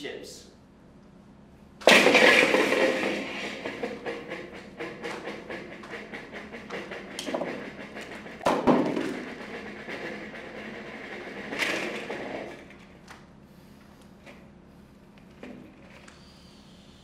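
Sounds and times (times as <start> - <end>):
loud knock: 1.8 - 12.6.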